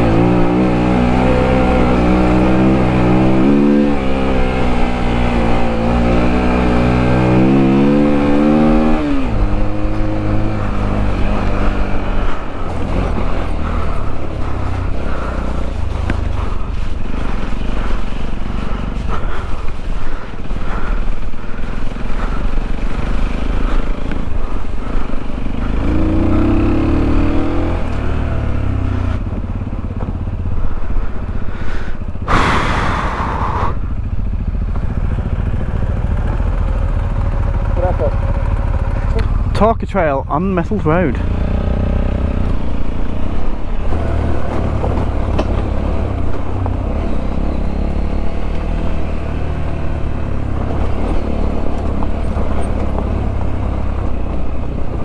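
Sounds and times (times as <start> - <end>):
motorcycle engine revving: 0.0 - 55.0
loud rushing noise: 32.2 - 34.2.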